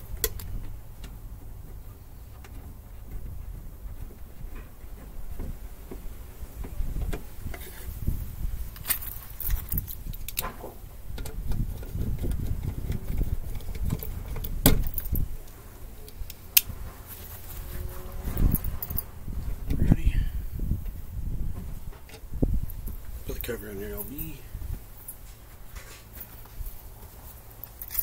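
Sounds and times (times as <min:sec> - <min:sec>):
metal hardware clinking: 0:27.6 - 0:28.0.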